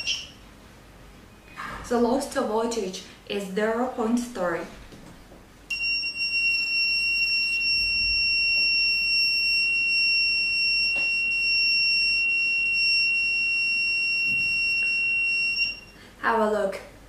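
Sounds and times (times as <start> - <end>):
high-pitched buzzer tone: 0.0 - 0.4, 5.7 - 16.0.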